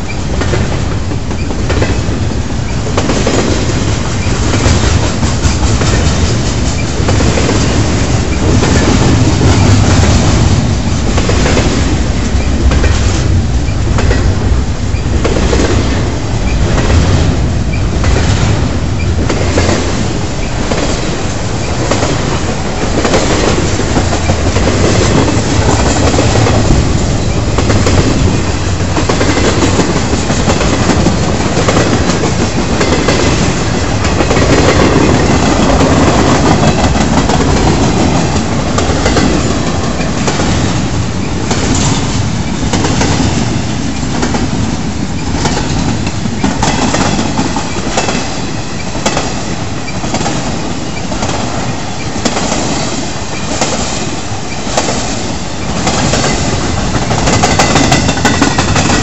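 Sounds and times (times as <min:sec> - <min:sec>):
train rolling rumble: 0:00.0 - 0:59.0
train wheels clicking over rail joints: 0:00.0 - 0:59.0.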